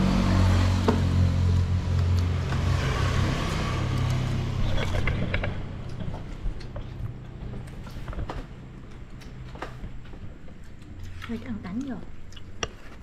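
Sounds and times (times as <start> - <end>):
vehicle engine running: 0.0 - 9.0.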